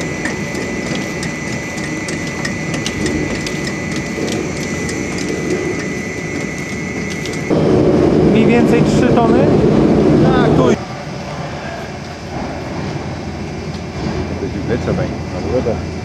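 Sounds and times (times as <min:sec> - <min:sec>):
clatter of knocks and clacks: 0:00.0 - 0:07.5
machine mechanical rumble: 0:00.0 - 0:10.8
constant high whine: 0:00.0 - 0:16.0.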